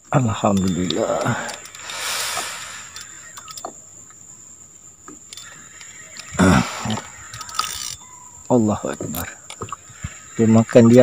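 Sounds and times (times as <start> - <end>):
insect drone: 0.0 - 11.0
fishing reel clicks: 0.5 - 3.7, 5.3 - 9.6.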